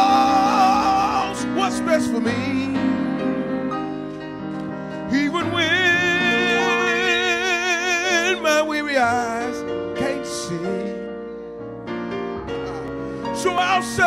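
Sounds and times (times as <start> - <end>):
man singing gospel: 0.0 - 3.4, 4.9 - 11.2, 13.3 - 14.0.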